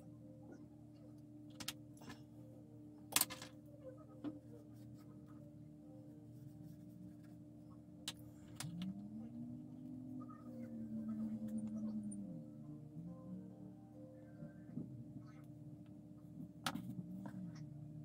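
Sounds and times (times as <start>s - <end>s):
low steady hum: 0.0s - 18.0s
soft rising tone: 8.6s - 15.3s.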